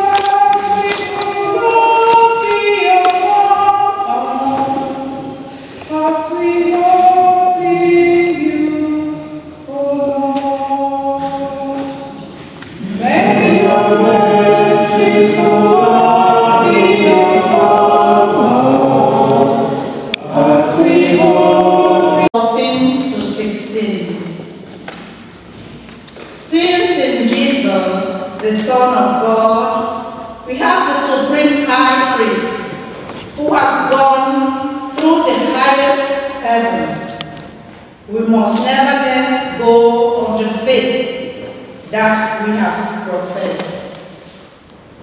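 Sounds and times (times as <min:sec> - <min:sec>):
church choir singing: 0:00.0 - 0:24.5.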